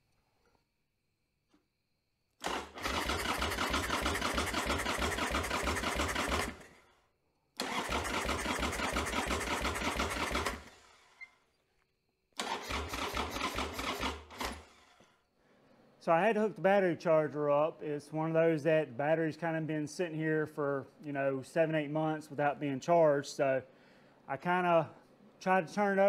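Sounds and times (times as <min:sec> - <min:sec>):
motorcycle starter cranking: 0:02.4 - 0:06.8, 0:07.6 - 0:11.4, 0:12.4 - 0:15.2.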